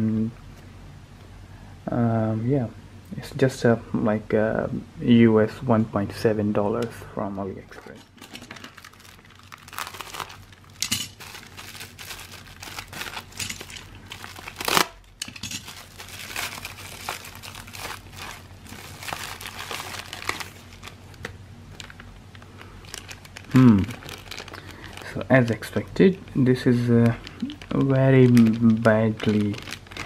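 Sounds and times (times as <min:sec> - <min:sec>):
plastic packaging crinkling: 0:08.1 - 0:26.0, 0:26.6 - 0:30.0
plastic ripping: 0:08.2 - 0:25.8, 0:27.0 - 0:30.0.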